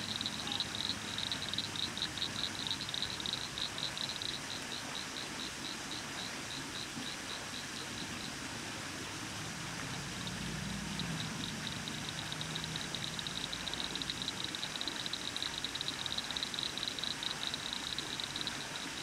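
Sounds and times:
background noise: 0.0 - 19.0.

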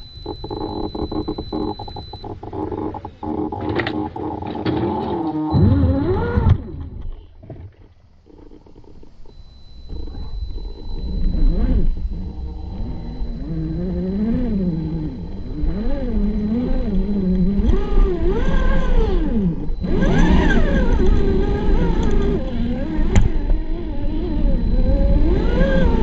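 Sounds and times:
electric motor whining: 0.0 - 7.4, 8.1 - 26.0
low rumble: 9.1 - 26.0.

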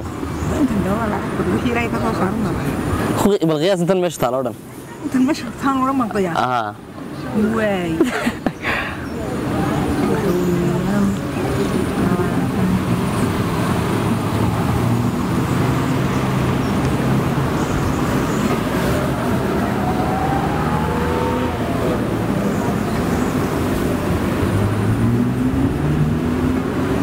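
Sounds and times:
vehicle engines running: 0.0 - 27.0
engine speeding up: 9.5 - 27.0.

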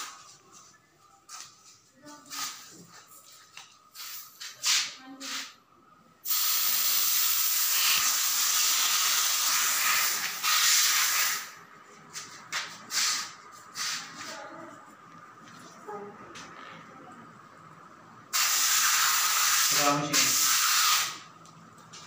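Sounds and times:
spray paint can hissing: 3.9 - 5.5, 6.2 - 11.6, 12.9 - 14.1, 18.3 - 21.2.

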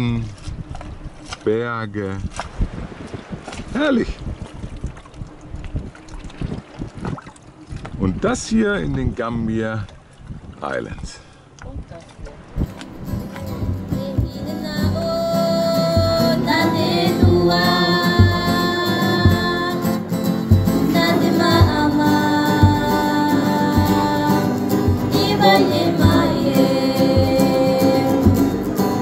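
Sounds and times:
song with singer over beat: 13.6 - 29.0.

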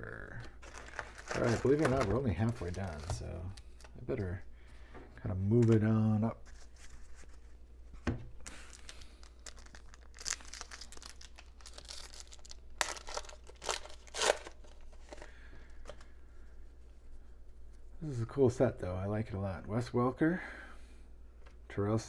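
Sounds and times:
foil wrapper tearing and crinkling: 0.6 - 3.4, 8.5 - 14.8.

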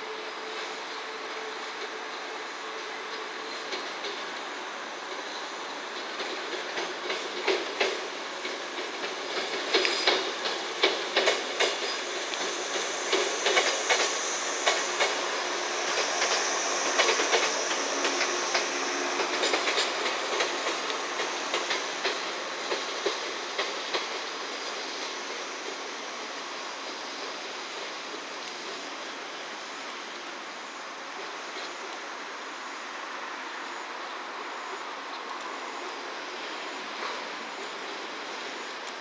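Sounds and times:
train wheels clattering: 2.7 - 29.1
high wheel squeal: 11.7 - 22.3.

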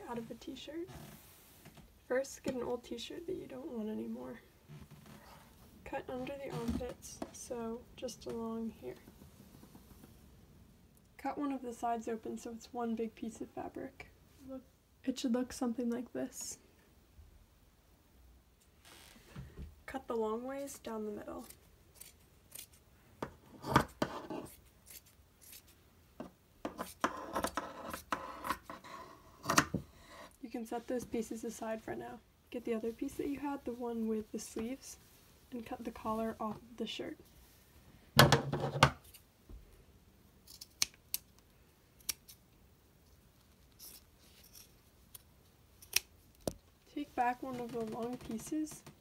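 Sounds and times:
scissors snipping cloth: 21.4 - 22.8, 43.8 - 46.6
scissors snipping fabric: 21.4 - 22.8, 45.8 - 46.1.

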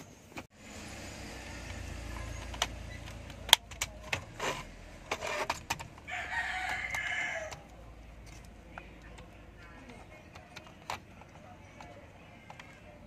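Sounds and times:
rooster crowing: 6.1 - 7.7.

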